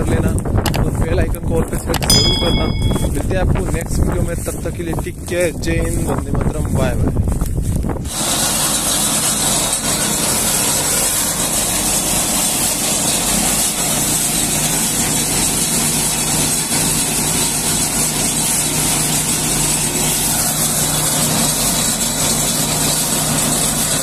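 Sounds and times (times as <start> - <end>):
tractor engine humming: 0.0 - 24.0
straw blower rushing hiss: 8.0 - 24.0.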